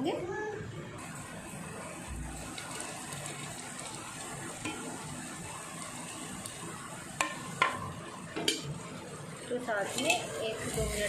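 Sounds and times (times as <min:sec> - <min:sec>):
vegetables sizzling in hot oil: 0:01.0 - 0:11.0
metal spoon knocking pan: 0:08.4 - 0:08.7.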